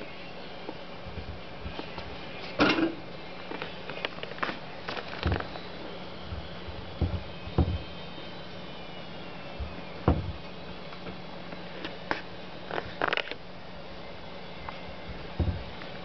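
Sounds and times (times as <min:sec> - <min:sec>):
cabinet door knocking on frame: 0:07.0 - 0:07.9, 0:10.1 - 0:10.4.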